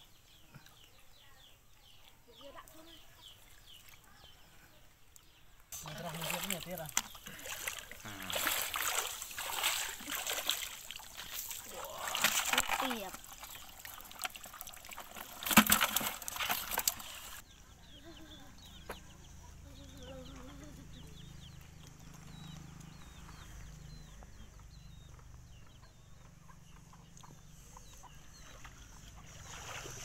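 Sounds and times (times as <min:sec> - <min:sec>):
fish splashing in a bucket: 0:05.8 - 0:17.4.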